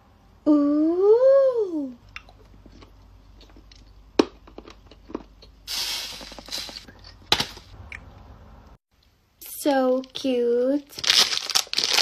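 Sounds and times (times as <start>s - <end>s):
breathy hiss: 5.7s - 6.9s.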